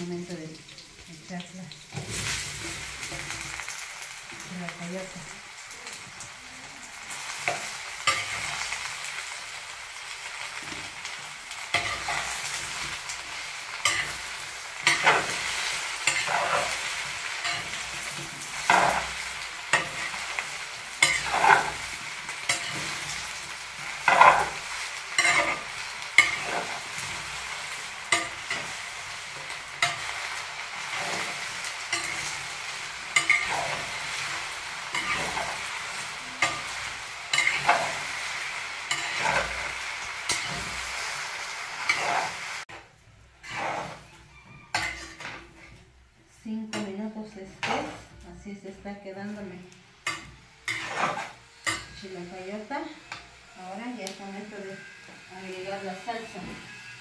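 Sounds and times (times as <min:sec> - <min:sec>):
vegetables sizzling in oil: 0:00.0 - 0:57.0
utensil scraping pot: 0:13.8 - 0:38.2, 0:38.9 - 0:41.0, 0:41.8 - 0:42.7, 0:43.4 - 0:45.8, 0:46.8 - 0:48.2, 0:50.0 - 0:52.1.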